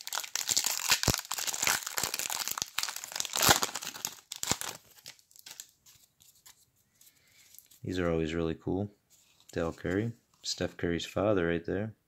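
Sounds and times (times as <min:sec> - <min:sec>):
plastic wrapper crinkling: 0:00.0 - 0:07.8.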